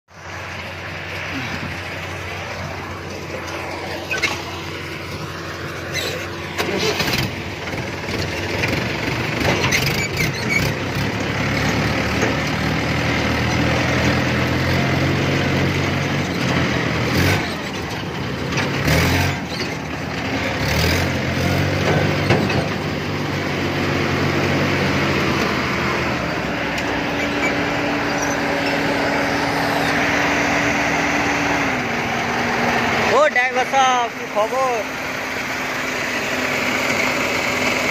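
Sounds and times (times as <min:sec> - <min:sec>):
tractor diesel engine running: 0:00.1 - 0:37.9
clanks and rattles: 0:05.9 - 0:12.6, 0:16.2 - 0:23.0.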